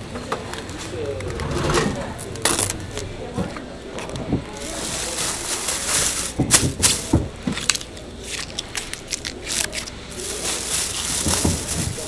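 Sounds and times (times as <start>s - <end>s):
plastic bag crinkling: 2.2s - 3.2s, 3.9s - 12.0s.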